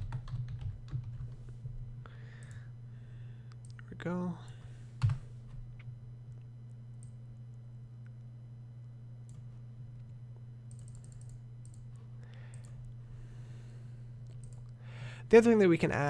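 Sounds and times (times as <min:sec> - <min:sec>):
low steady hum: 0:00.0 - 0:16.0
keyboard and mouse clicks: 0:10.7 - 0:11.8, 0:14.2 - 0:14.7.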